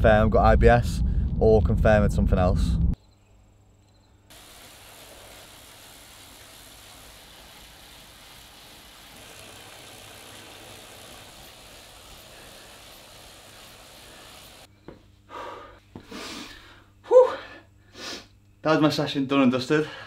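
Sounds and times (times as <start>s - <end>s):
bike trainer whirring: 4.4s - 14.7s.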